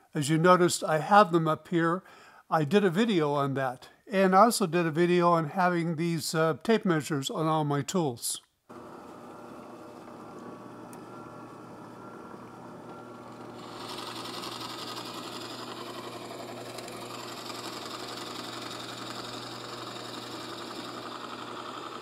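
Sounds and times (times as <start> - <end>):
drill bit cutting wood: 8.7 - 22.0
drill press motor humming: 8.7 - 22.0.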